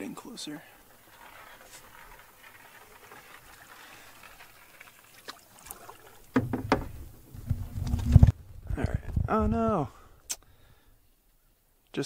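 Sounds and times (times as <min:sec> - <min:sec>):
water trickling off paddle: 0:00.6 - 0:08.5
knocking on canoe: 0:06.3 - 0:08.3.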